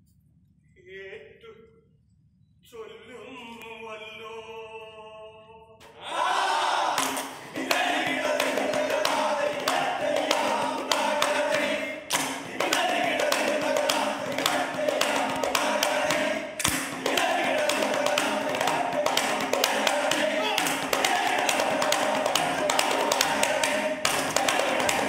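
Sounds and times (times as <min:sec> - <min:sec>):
chorus chanting and singing: 0:02.8 - 0:25.0
hands clapping: 0:07.0 - 0:25.0.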